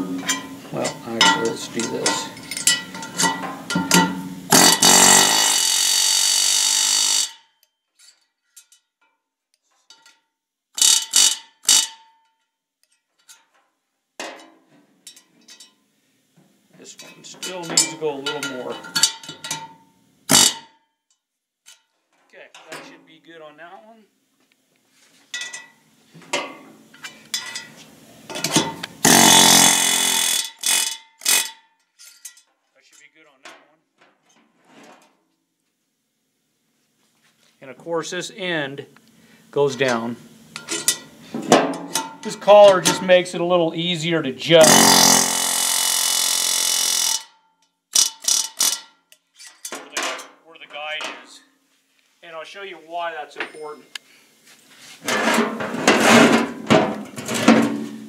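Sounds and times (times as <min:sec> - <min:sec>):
pneumatic air hammer buzzing: 0:00.0 - 0:07.4, 0:10.8 - 0:12.0, 0:20.3 - 0:20.7, 0:28.3 - 0:31.6, 0:44.5 - 0:49.0
ringing metallic hits: 0:00.0 - 0:07.4.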